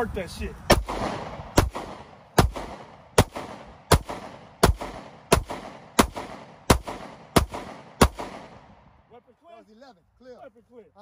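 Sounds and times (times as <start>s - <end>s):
gunshots with echo: 0.7s - 8.8s.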